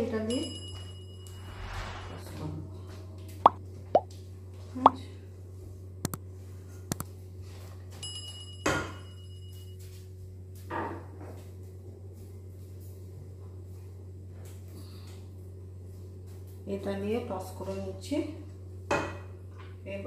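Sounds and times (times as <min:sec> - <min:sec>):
low steady hum: 0:00.0 - 0:07.2.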